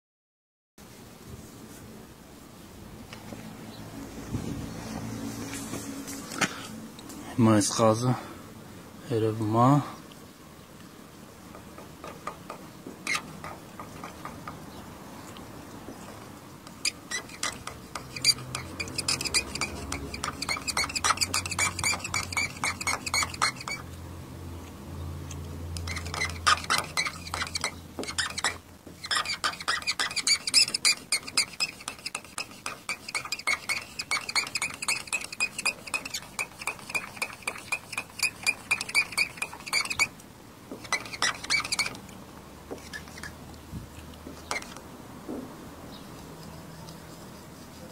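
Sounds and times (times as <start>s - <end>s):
pen tip scratching on car paint: 11.5s - 14.7s, 15.3s - 24.0s, 25.7s - 42.1s, 42.7s - 43.4s, 44.2s - 44.9s, 46.1s - 47.9s.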